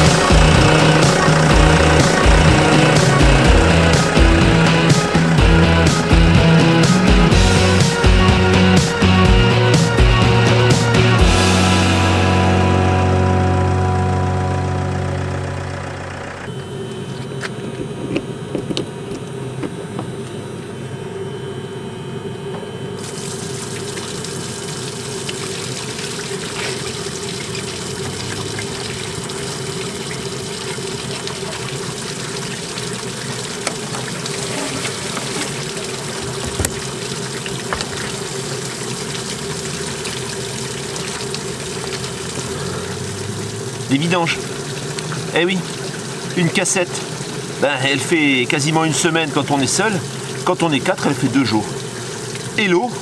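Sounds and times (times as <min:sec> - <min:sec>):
steady low hum: 0:00.0 - 0:46.4
water running through hose: 0:23.0 - 0:53.0.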